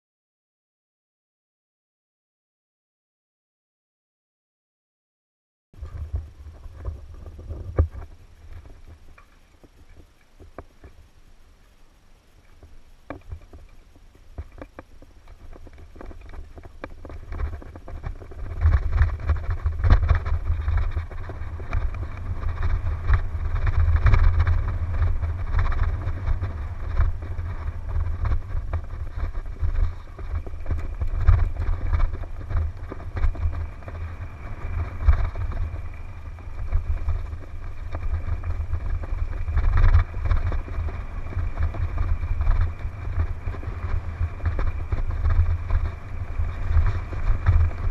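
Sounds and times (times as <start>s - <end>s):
wind buffeting microphone: 5.8s - 47.9s
bike clicks and rattles: 12.5s - 47.9s.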